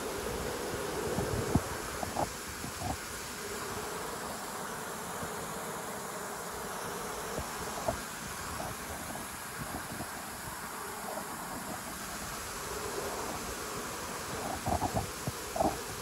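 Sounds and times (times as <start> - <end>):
honeybee colony humming: 0.0 - 16.0.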